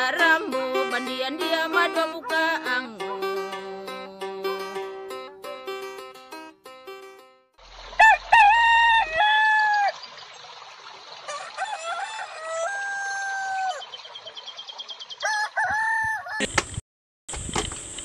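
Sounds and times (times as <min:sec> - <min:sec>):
roosters crowing: 0:07.8 - 0:10.0, 0:11.3 - 0:13.9, 0:15.2 - 0:16.5
small birds chirping: 0:09.6 - 0:11.3, 0:13.6 - 0:15.3.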